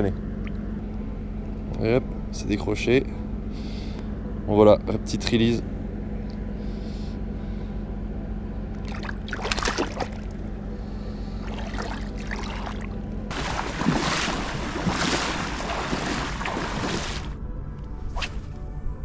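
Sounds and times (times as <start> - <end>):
steady low hum: 0.0 - 19.0
legs wading through water: 8.8 - 10.4, 11.4 - 17.4
splashes in shallow water: 8.8 - 10.4, 11.4 - 17.4.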